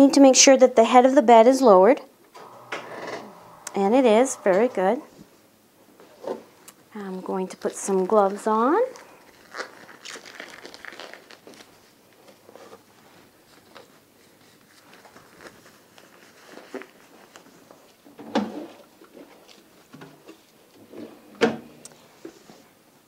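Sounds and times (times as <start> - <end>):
plastic gloves rustling: 7.0 - 18.0, 18.8 - 20.9.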